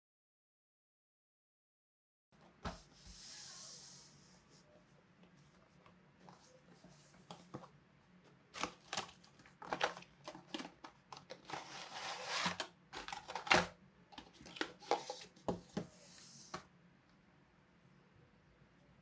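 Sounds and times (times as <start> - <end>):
packaging rustling: 8.6 - 15.4.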